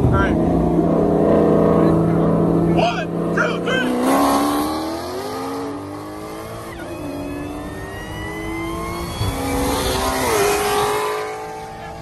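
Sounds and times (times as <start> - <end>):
car engines accelerating: 0.0 - 12.0.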